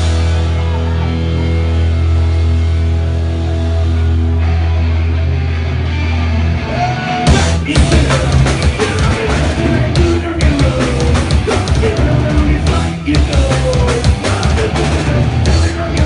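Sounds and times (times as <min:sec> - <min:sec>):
guitars and bass ringing chord: 0:00.0 - 0:13.1
punk rock band playing: 0:00.0 - 0:16.0.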